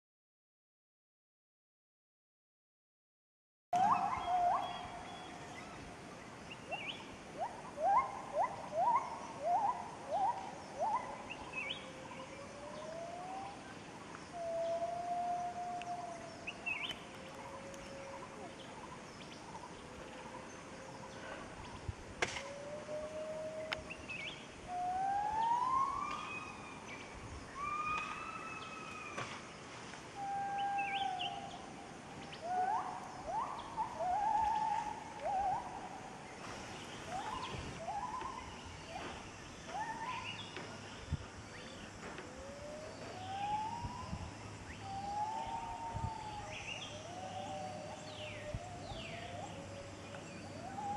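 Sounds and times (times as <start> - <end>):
gibbons whooping calls: 3.8 - 5.3, 6.7 - 13.6, 24.7 - 26.8, 27.5 - 29.2, 30.2 - 31.6, 32.4 - 36.2, 37.1 - 39.0, 42.4 - 50.9.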